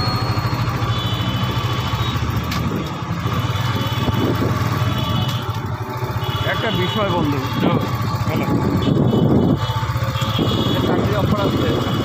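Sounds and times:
motorcycle engine cruising: 0:00.0 - 0:12.0
wind and road noise: 0:00.0 - 0:12.0.

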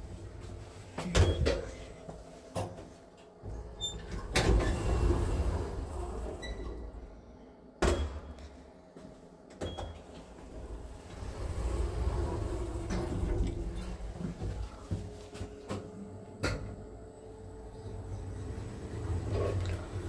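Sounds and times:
lift doors sliding open: 0:03.4 - 0:07.1, 0:09.6 - 0:15.4, 0:17.8 - 0:20.0.

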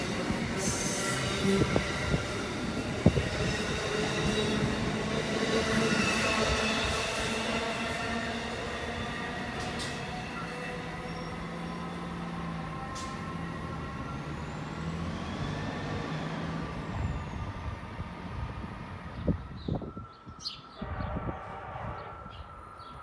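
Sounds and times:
electric train rumbling: 0:00.0 - 0:23.0.

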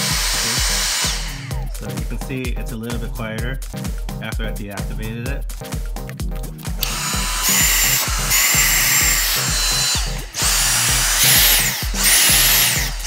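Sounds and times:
vacuum motor whine: 0:00.0 - 0:01.6, 0:06.8 - 0:13.0
background music with steady beat: 0:00.0 - 0:13.0.

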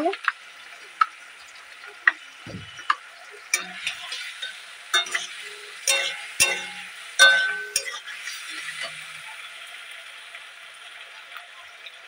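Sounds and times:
vegetables sizzling: 0:00.0 - 0:12.0
metal spatula scraping pan: 0:03.6 - 0:09.2.

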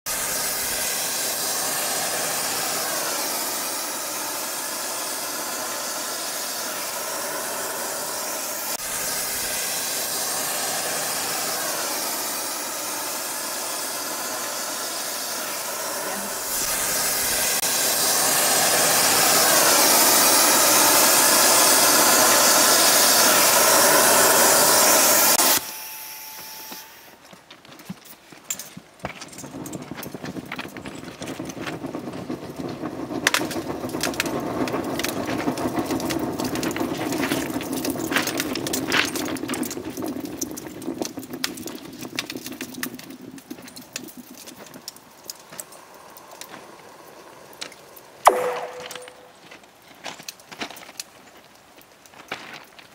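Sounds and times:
gas burner hissing: 0:00.0 - 0:27.3, 0:29.3 - 0:49.8.

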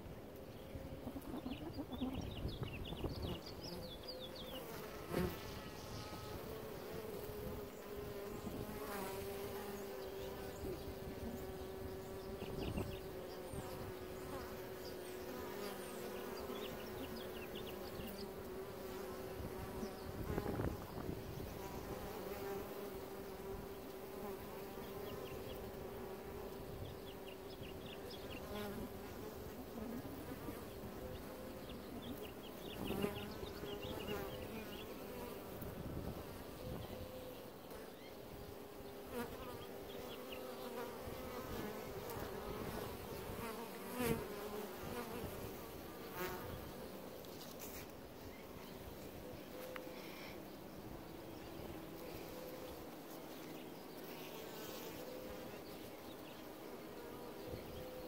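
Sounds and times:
bees humming at hive: 0:00.0 - 0:58.0
bee buzzing past close: 0:00.5 - 0:58.0.

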